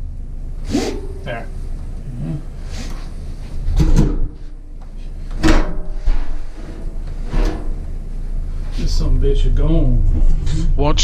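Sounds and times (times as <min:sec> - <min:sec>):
bathtub scraping and knocking: 0:05.3 - 0:08.0.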